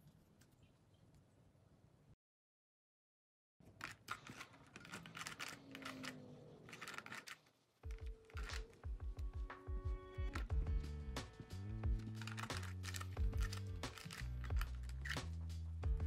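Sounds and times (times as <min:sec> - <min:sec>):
background music with steady beat: 0:07.8 - 0:16.0.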